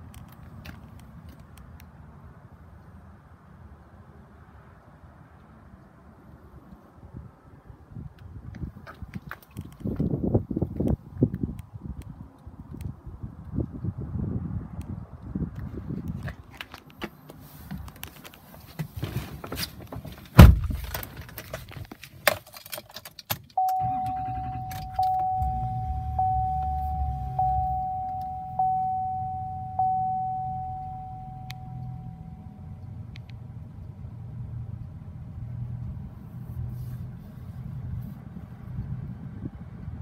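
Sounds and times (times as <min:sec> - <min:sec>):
clicks and rustling: 0:16.1 - 0:23.6
vehicle door shutting: 0:20.3 - 0:21.1, 0:23.6 - 0:30.2
car engine starting and idling: 0:23.5 - 0:33.1
warning chime dinging: 0:23.6 - 0:32.8.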